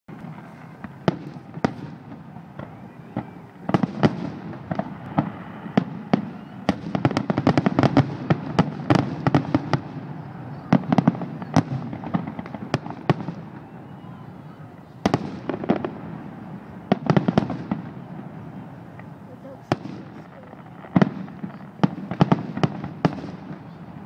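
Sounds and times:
fireworks bangs and crackles: 0.1 - 24.0
low background noise: 0.1 - 24.0.

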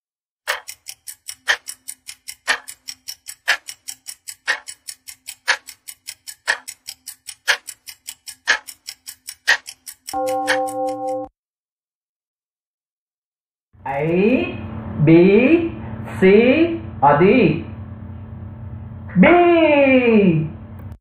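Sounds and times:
clock ticking: 0.4 - 11.3.

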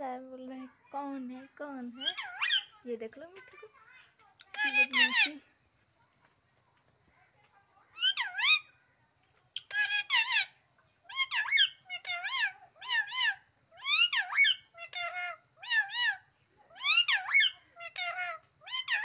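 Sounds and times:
parakeet harsh calls: 1.9 - 2.8, 4.5 - 5.4, 8.0 - 8.7, 9.6 - 19.0.

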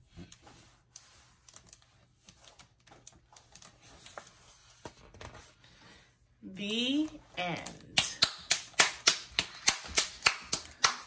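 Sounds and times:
book pages turning: 0.0 - 5.8.

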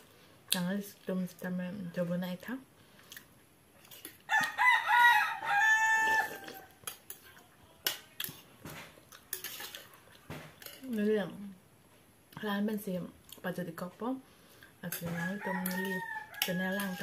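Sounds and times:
rooster crowing: 4.3 - 6.8, 15.0 - 17.0
metal spoon clinking on steel bowl: 9.3 - 10.0, 10.6 - 11.1, 14.8 - 17.0.

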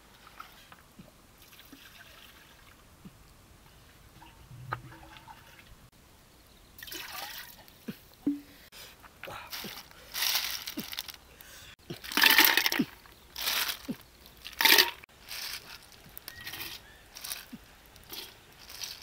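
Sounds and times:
snail shells clattering: 12.1 - 19.0.

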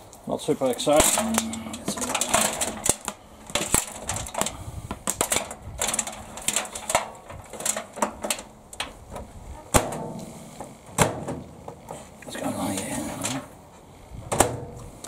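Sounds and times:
plastic-coated wires rustling: 0.7 - 9.8
small bulbs clicking and rattling: 0.9 - 9.2.

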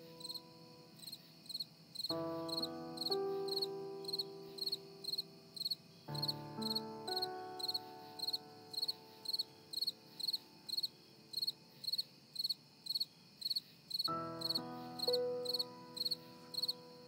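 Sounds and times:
cricket-like chirp: 0.0 - 17.0
music of sustained chords: 2.1 - 11.8, 14.1 - 17.0.

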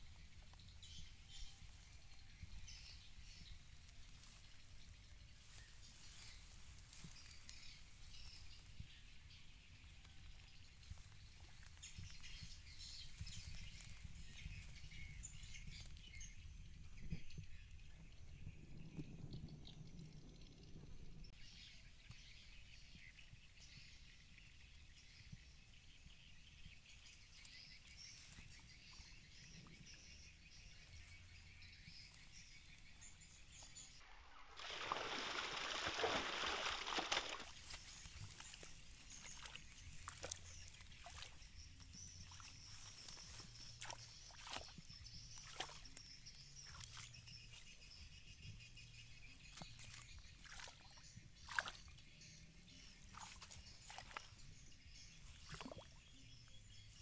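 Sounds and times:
faint outdoor ambience: 0.0 - 57.0
hands rustling in wet grass: 0.1 - 16.0, 31.0 - 57.0
water splashing and sloshing: 33.7 - 47.7, 48.9 - 56.5.

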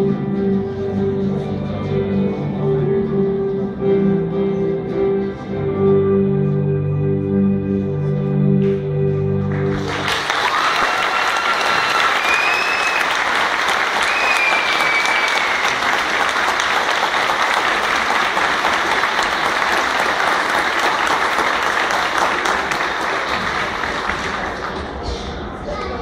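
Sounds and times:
audience applauding: 9.5 - 25.2.

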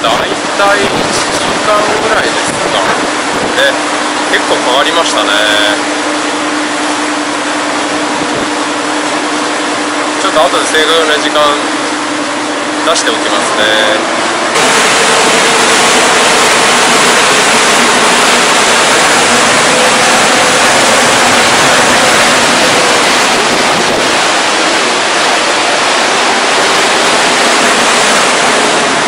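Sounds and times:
wind on microphone: 0.0 - 4.0, 7.5 - 9.9, 14.5 - 29.0
water churning in boat wake: 0.0 - 29.0.

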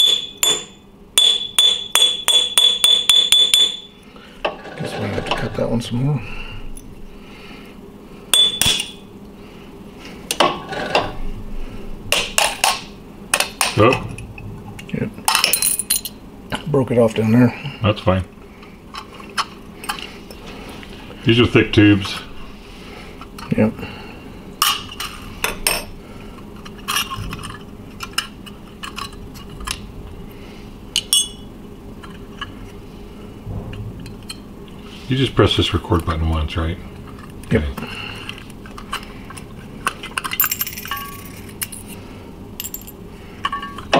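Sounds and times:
tool clinking on glass tube: 0.0 - 3.9, 31.0 - 31.5.

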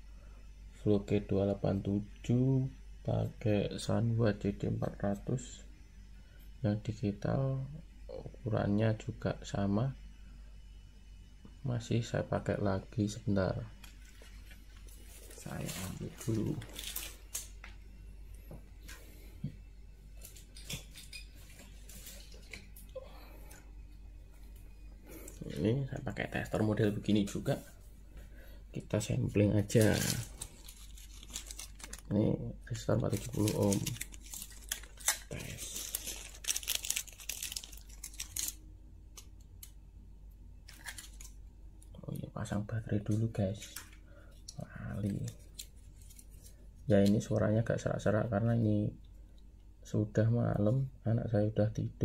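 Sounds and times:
low steady hum: 0.0 - 52.0
plastic bag crinkling: 13.8 - 17.6, 29.6 - 39.7, 40.6 - 41.4.

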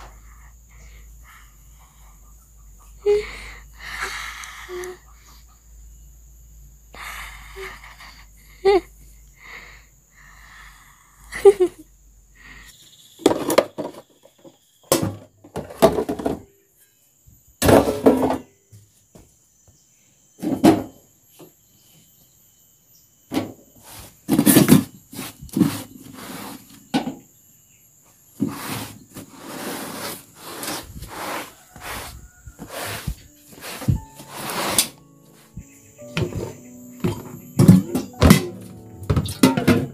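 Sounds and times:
household things knocking and scraping: 13.2 - 16.5, 17.6 - 18.5, 23.3 - 27.2, 28.4 - 39.9
high-pitched insect buzz: 18.6 - 39.6.

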